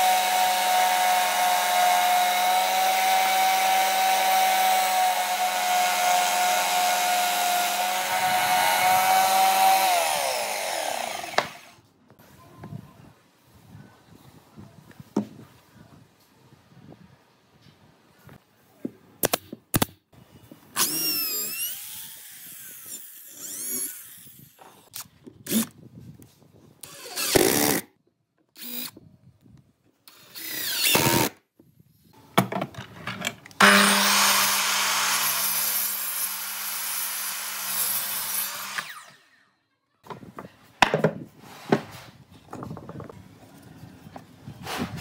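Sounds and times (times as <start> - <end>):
electric drill whining into wood: 0.0 - 11.8, 20.8 - 24.9, 26.8 - 27.8, 28.6 - 29.0, 30.1 - 31.3, 33.6 - 39.4
miter saw cutting wood: 0.0 - 11.8, 20.8 - 24.6, 33.6 - 39.5.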